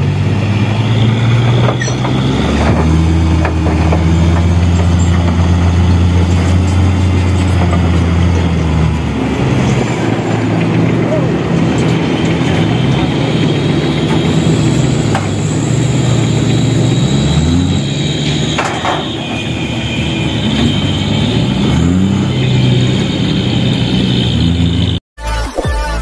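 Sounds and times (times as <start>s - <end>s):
truck diesel engine revving: 0.0s - 25.0s.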